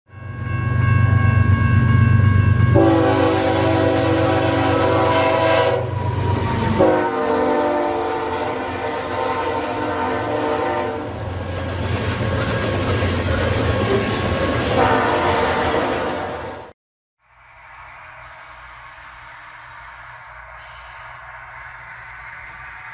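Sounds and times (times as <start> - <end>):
locomotive air horn blasts: 2.7 - 11.3, 14.7 - 16.7.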